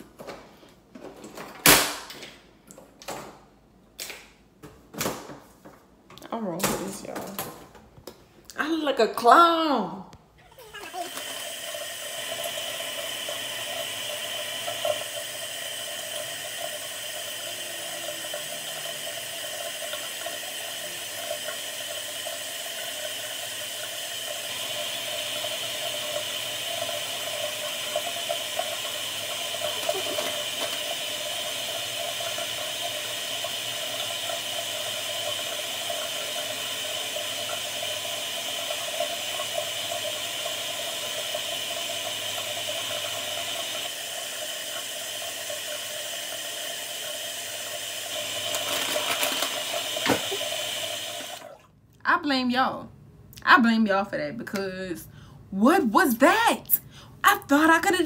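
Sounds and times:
tap water running into sink: 10.6 - 51.6.

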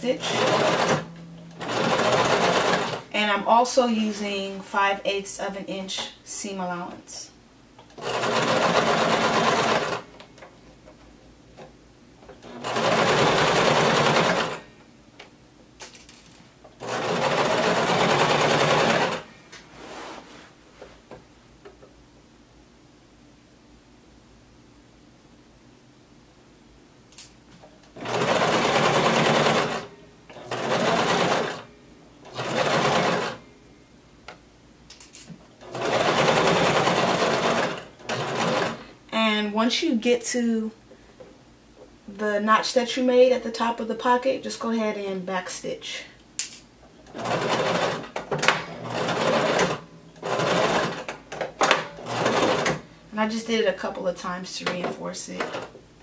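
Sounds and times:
sewing machine stitching: 0.1 - 3.0, 7.9 - 10.0, 12.4 - 14.6, 16.8 - 19.2, 28.0 - 31.6, 32.3 - 33.4, 35.6 - 38.8, 47.0 - 52.8.

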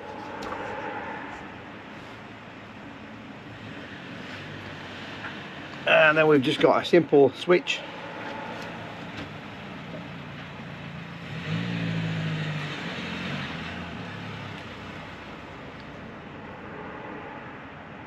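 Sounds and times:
steady background hum: 0.0 - 3.6
vehicle engine passing by: 0.0 - 5.2, 5.9 - 18.0.

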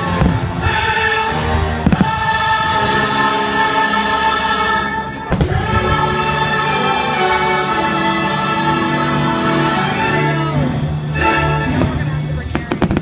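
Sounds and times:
choir singing held chords: 0.0 - 12.2
firework bang: 1.8 - 2.4, 5.3 - 6.0.

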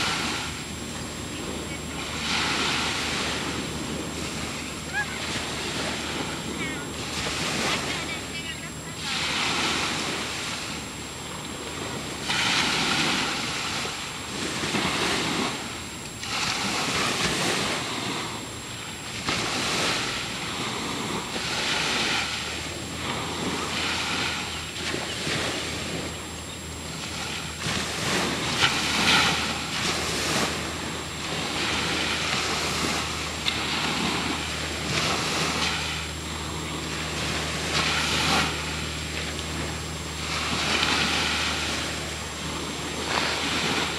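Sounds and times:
low steady hum: 0.0 - 43.9
ocean water sloshing: 0.0 - 43.9.

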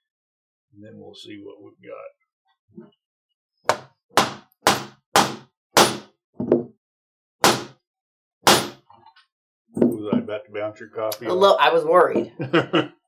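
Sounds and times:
mallet striking steel punch: 3.7 - 6.1, 7.4 - 7.8, 8.4 - 8.8.

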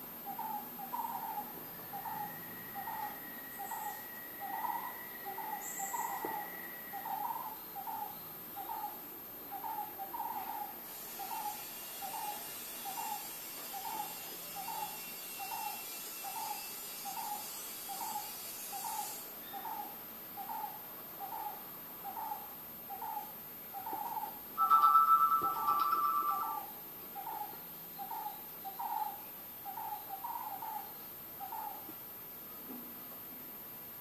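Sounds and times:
hooting animal call: 0.3 - 9.0, 19.6 - 31.8.

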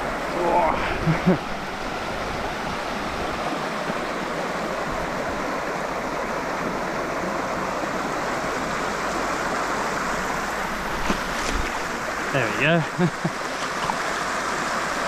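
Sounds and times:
creek water running over rocks: 0.0 - 15.0.

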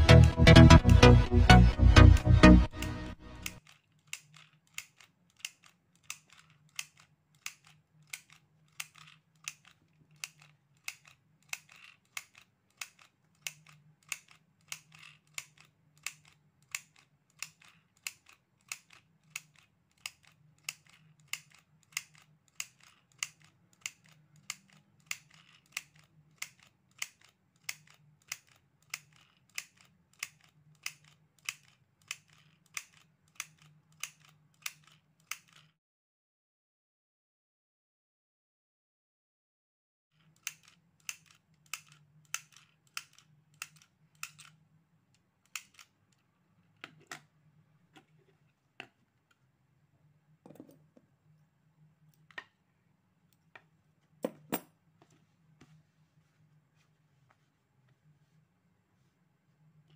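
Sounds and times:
mini sewing machine clacking: 2.8 - 35.7, 40.2 - 44.5.

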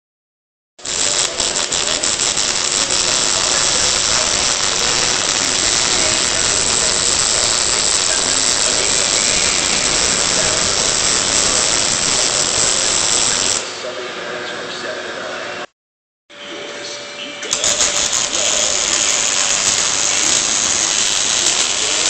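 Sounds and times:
welding arc crackles: 0.8 - 13.8, 17.4 - 22.0
welding arc hissing: 0.8 - 13.9, 17.4 - 22.0.

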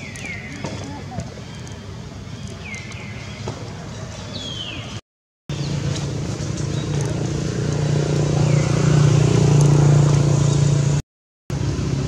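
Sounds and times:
engine running: 5.5 - 12.0.

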